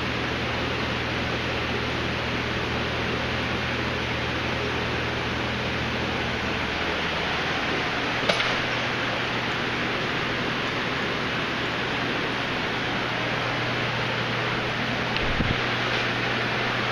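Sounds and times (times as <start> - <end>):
aquarium filters and pumps running: 0.0 - 16.9
sharp click: 8.2 - 8.6.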